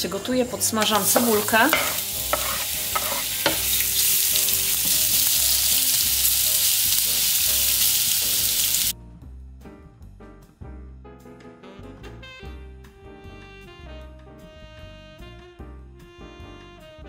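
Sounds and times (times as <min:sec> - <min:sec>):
soft background music: 0:00.0 - 0:17.0
onion sizzling in pan: 0:00.7 - 0:08.9.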